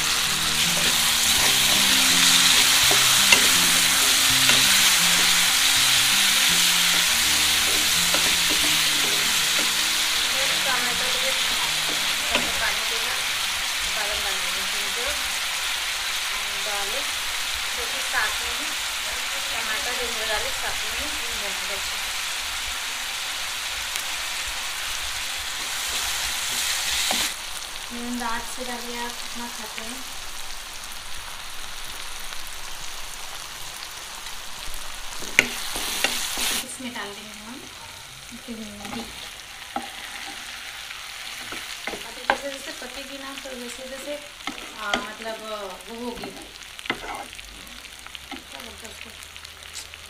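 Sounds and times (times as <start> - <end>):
spatula stirring: 0.0 - 12.8, 38.7 - 42.7, 44.4 - 45.2, 46.2 - 47.4
masala sizzling in pan: 0.0 - 50.0.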